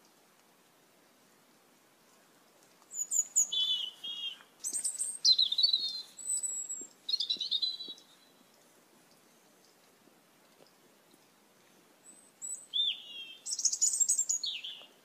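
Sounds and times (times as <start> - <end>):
starling chirps and whistles: 2.9 - 8.2, 12.1 - 14.8.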